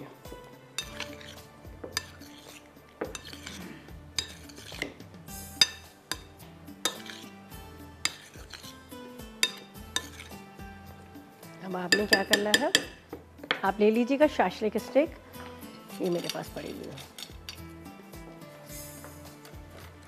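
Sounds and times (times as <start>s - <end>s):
soft background music: 0.0s - 20.0s
utensil scraping mixing bowl: 0.8s - 5.0s, 6.8s - 7.4s, 8.0s - 10.4s.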